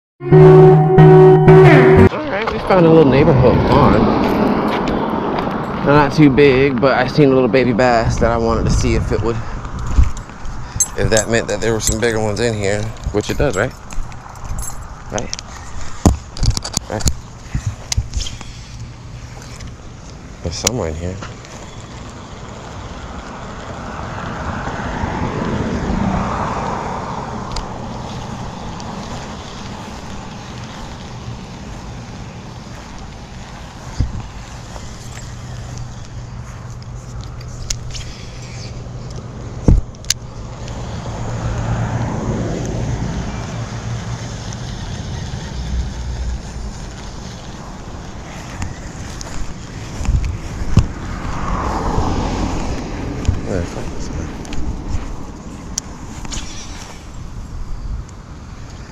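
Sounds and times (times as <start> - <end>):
vehicle driving past: 0.4 - 9.4, 21.6 - 37.3, 40.3 - 57.1
wind rumble on microphone: 7.6 - 18.4, 32.9 - 35.8, 45.8 - 58.9.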